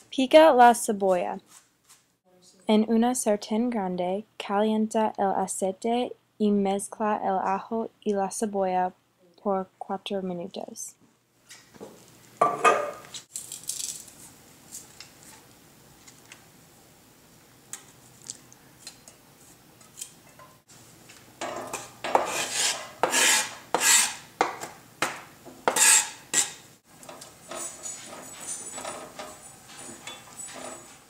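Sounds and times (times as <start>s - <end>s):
pans and utensils clinking: 12.4s - 13.1s, 21.4s - 22.4s, 27.0s - 31.0s
utensil scraping cutting board: 21.7s - 24.3s, 25.6s - 26.6s
loud rasping scrapes: 22.1s - 24.2s, 25.7s - 26.6s.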